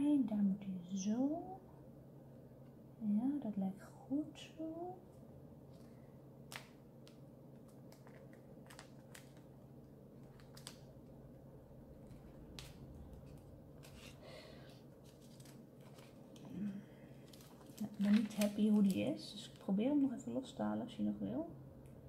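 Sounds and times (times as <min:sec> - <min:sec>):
low steady hum: 0:00.0 - 0:22.0
vinyl tape peeling and crackling: 0:06.5 - 0:11.3, 0:11.9 - 0:14.2, 0:14.9 - 0:19.8.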